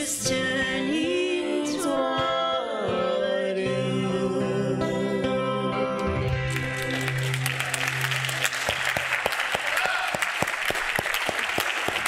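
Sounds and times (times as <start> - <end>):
congregation applauding: 6.4 - 12.0.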